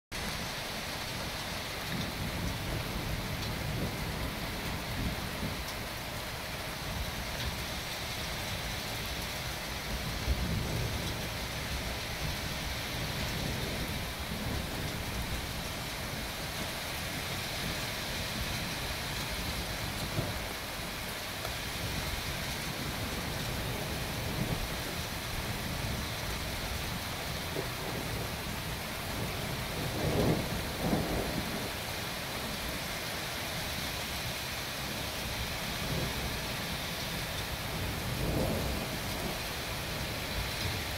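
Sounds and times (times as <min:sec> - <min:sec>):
steady rain hissing: 0:00.1 - 0:40.9
thunder rumbling: 0:22.0 - 0:31.8, 0:37.4 - 0:40.9.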